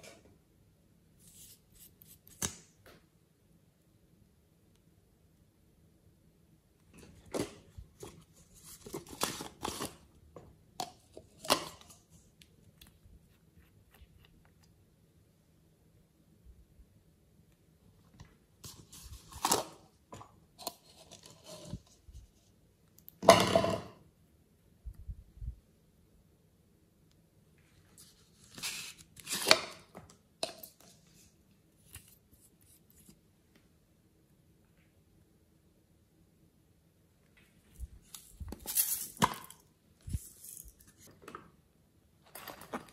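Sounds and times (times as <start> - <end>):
plastic containers scraping and clicking: 42.3 - 42.9.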